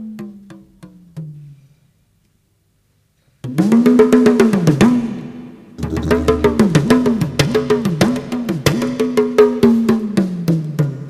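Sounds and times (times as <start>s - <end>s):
clicking percussion: 5.8s - 7.3s
didgeridoo drone: 5.8s - 7.7s.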